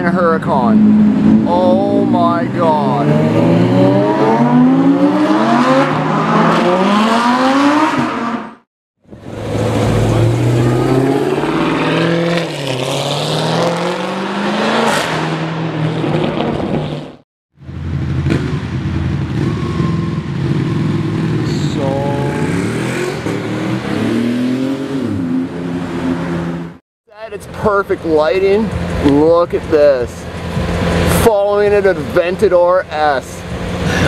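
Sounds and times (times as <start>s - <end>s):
sports car engine revving: 0.5s - 17.1s, 17.7s - 26.8s
car pulling away hard: 9.1s - 17.1s.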